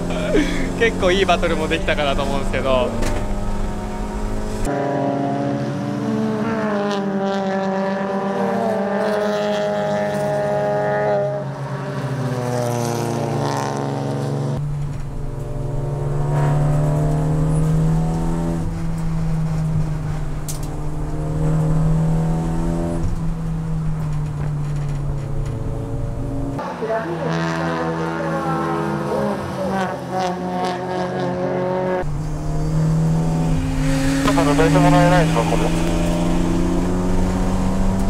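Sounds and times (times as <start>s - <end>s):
race car engine from cockpit: 0.0s - 38.0s
race car passing by: 25.6s - 38.0s.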